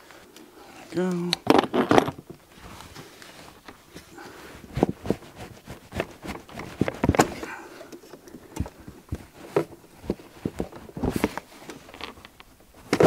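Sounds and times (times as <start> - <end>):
hands clicking and knocking parts: 4.7 - 13.0.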